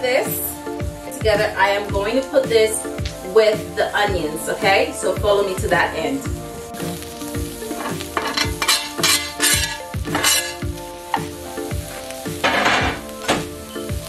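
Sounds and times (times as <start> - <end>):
background music with steady beat: 0.0 - 14.0
vegetables sizzling in a frying pan: 4.3 - 14.0.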